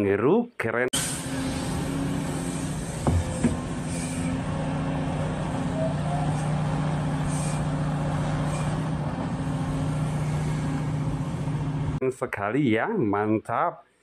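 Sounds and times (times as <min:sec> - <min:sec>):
excavator diesel engine running: 0:01.0 - 0:12.0.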